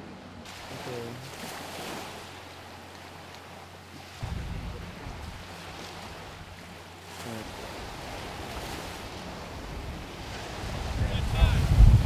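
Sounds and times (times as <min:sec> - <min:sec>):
ocean surf washing in: 0:00.0 - 0:12.0
wind buffeting microphone: 0:04.2 - 0:12.0.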